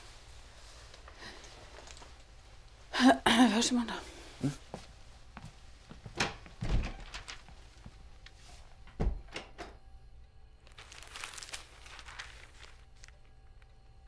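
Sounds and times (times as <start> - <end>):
door shutting thud: 9.0 - 9.7.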